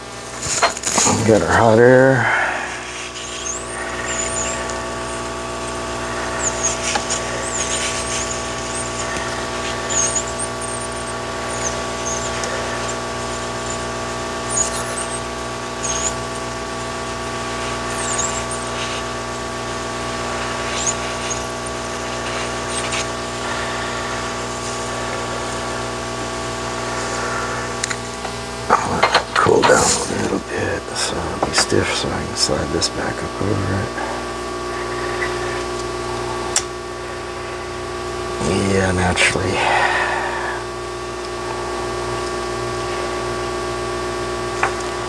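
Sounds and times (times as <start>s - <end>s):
hot-air gun blowing: 0.0s - 28.7s, 33.9s - 43.9s
high squeaks: 2.8s - 15.2s, 15.8s - 16.2s, 17.7s - 19.1s, 20.4s - 23.8s.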